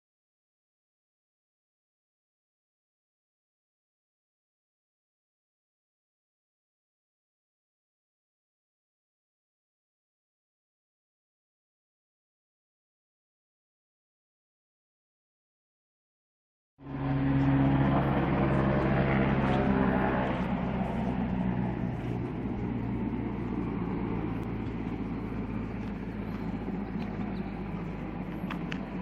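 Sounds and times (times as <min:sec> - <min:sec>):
motor humming: 0:16.8 - 0:29.0.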